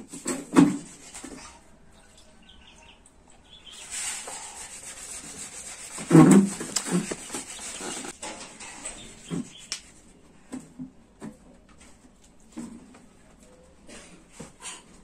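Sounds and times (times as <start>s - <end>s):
yam scraping on hand grater: 3.7s - 8.2s.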